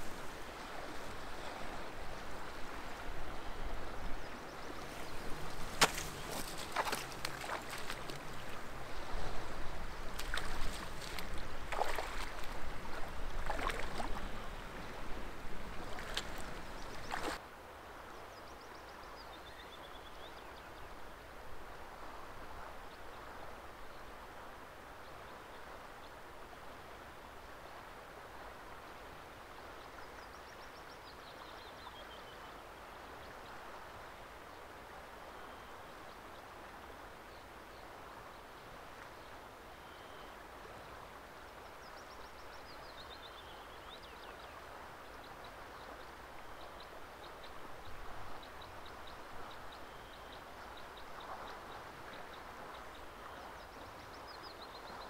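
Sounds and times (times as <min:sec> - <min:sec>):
running water: 0:00.0 - 0:17.4
songbird singing: 0:00.0 - 0:17.4, 0:18.1 - 0:21.0, 0:29.6 - 0:33.7, 0:35.3 - 0:36.5, 0:37.2 - 0:55.0.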